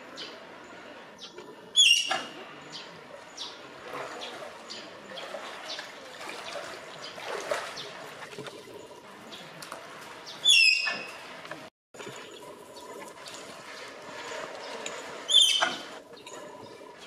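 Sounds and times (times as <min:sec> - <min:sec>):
water sloshing and trickling: 0:00.0 - 0:17.0
tapir whistling squeal: 0:10.4 - 0:11.2, 0:15.3 - 0:15.8.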